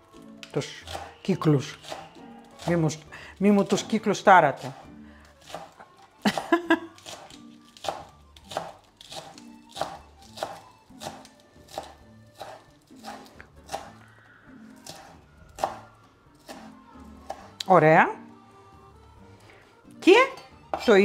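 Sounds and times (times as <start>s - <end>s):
knife chopping on cutting board: 0.8s - 2.9s, 4.6s - 6.4s, 7.0s - 14.0s, 14.8s - 17.6s.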